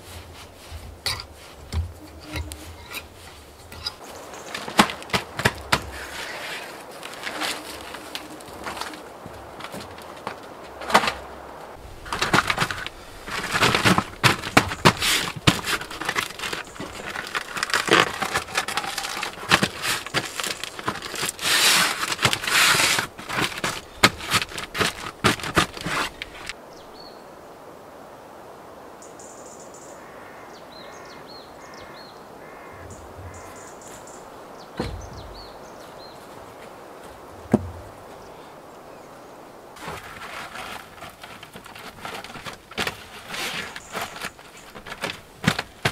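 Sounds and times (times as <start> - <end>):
dull thumps: 0.0 - 6.2, 8.5 - 26.5, 34.8 - 35.6, 37.1 - 38.1, 41.0 - 45.9
stiff sheet rustling and crackling: 0.0 - 26.6, 39.8 - 45.9
faint bird calls: 1.6 - 4.7, 5.7 - 9.2, 29.0 - 39.5.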